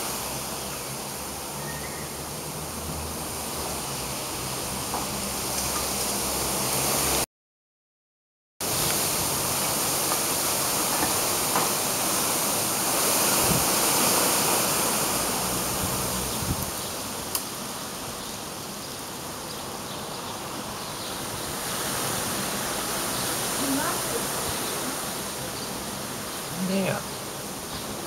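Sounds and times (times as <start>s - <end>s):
heavy rain: 0.0s - 7.3s, 8.6s - 28.0s
strong wind: 8.6s - 27.6s.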